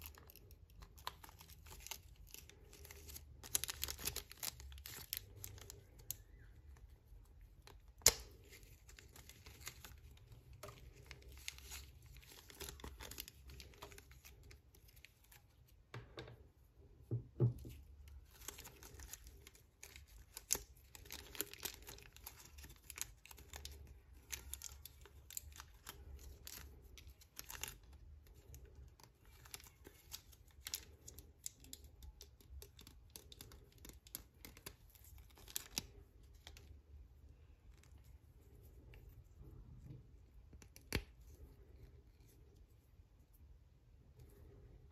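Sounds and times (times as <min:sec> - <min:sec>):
plastic bags crinkling: 0:18.1 - 0:36.6.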